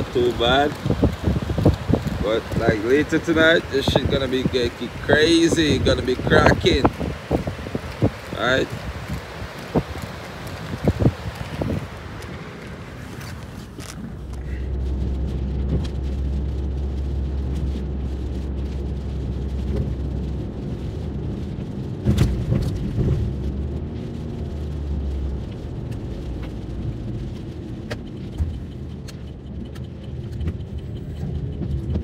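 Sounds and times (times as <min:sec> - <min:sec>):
car engine and road rumble: 0:00.0 - 0:32.0
deep drone: 0:13.8 - 0:32.0.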